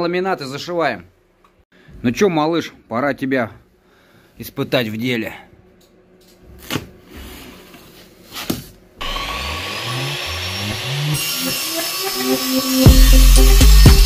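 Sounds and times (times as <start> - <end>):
power saw cutting laminate boards: 9.0 - 14.0.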